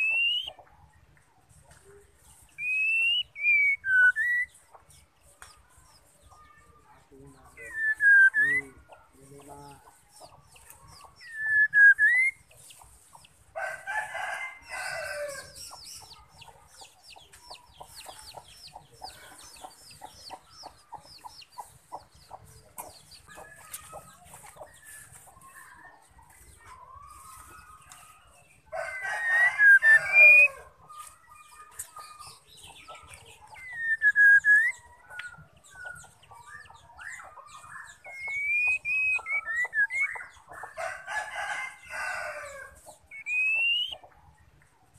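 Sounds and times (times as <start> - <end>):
bird whistling: 0.0 - 0.6, 2.6 - 4.5, 7.7 - 8.7, 11.2 - 12.4, 33.6 - 34.8, 38.1 - 40.3, 43.1 - 44.0
rooster crowing: 13.6 - 15.6, 28.7 - 30.7, 40.8 - 42.8
fast ticking bird notes: 35.7 - 40.3, 43.1 - 44.0.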